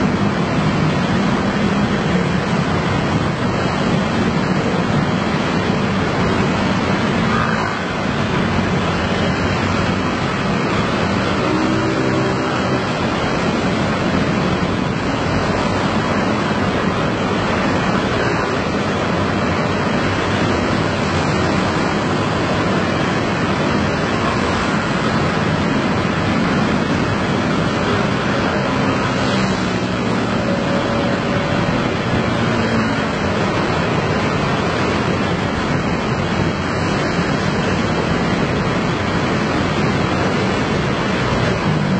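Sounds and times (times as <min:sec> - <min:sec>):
scooter engines passing: 0:00.0 - 0:41.9.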